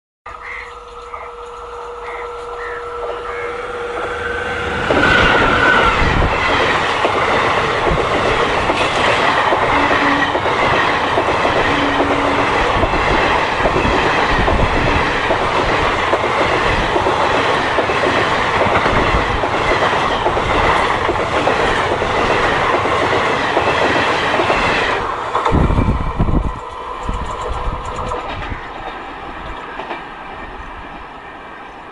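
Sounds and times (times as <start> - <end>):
train passing at speed: 0.3 - 31.9
wheels clacking over rail joints: 1.0 - 25.6.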